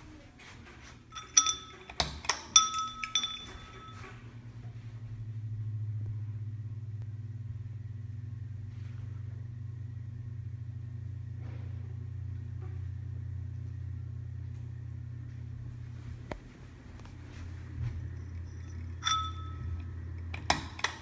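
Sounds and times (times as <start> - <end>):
ceiling fan motor humming: 0.0 - 21.0
chain clinking against glass: 1.1 - 4.1, 18.1 - 20.0
fan switch clicking: 19.8 - 21.0.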